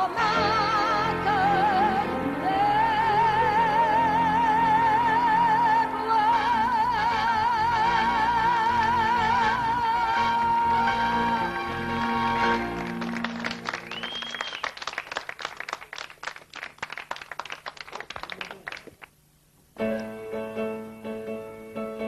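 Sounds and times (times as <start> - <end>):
slow piano introduction: 0.0 - 14.3, 19.8 - 22.0
audience applauding: 12.3 - 19.2
whistle from audience: 13.8 - 15.0.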